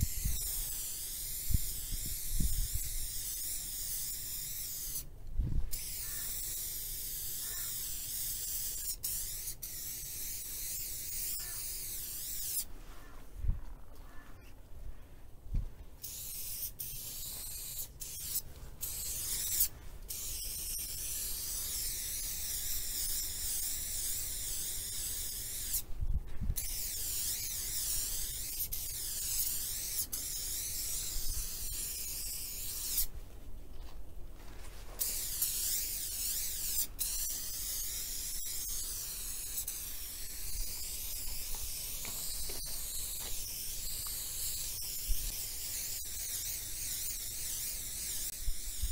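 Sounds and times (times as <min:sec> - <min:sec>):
spray paint can hissing: 0:00.0 - 0:05.1, 0:05.7 - 0:12.7, 0:16.0 - 0:25.9, 0:26.6 - 0:33.1, 0:35.0 - 0:48.9.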